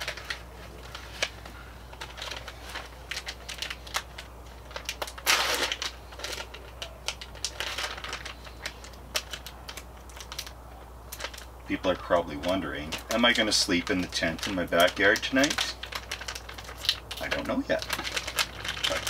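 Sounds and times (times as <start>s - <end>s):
plastic bag crinkling: 0.0s - 19.0s.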